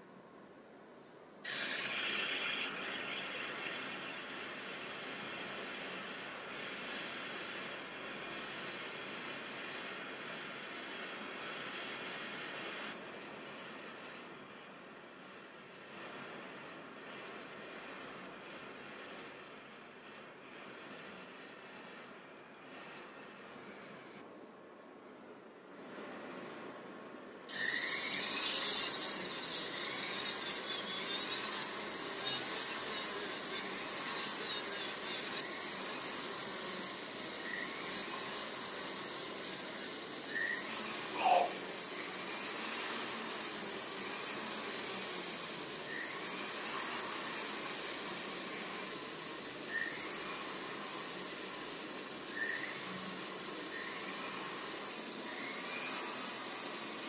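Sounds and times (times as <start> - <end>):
rotary tool hissing: 1.5 - 6.0, 27.5 - 57.0
polishing bit squeaking: 27.5 - 38.2, 39.0 - 42.1.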